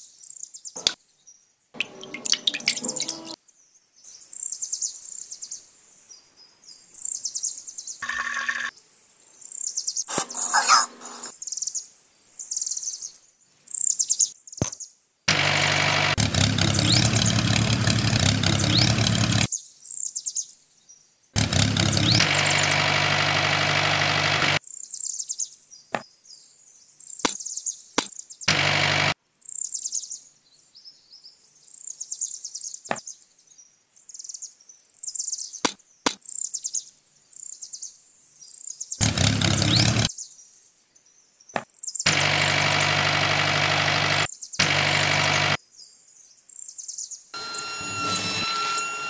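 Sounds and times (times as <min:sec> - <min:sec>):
small birds chirping: 0:00.0 - 0:15.0, 0:16.4 - 0:22.8, 0:24.4 - 0:28.5, 0:29.2 - 0:47.3
toy tractor motor drone: 0:08.0 - 0:08.7, 0:10.1 - 0:11.3, 0:15.3 - 0:19.5, 0:21.4 - 0:24.6, 0:28.5 - 0:29.2, 0:39.0 - 0:40.1, 0:42.1 - 0:45.6, 0:47.4 - 0:49.0.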